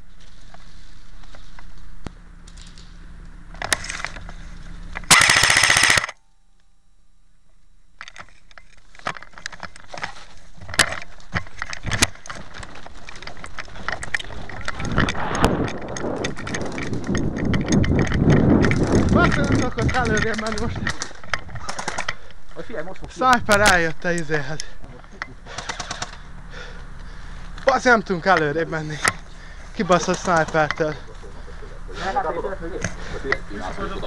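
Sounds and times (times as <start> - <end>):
clicks and rustling of handling: 0.2 - 6.2, 7.5 - 23.1
airsoft gun full-auto burst: 5.1 - 6.2.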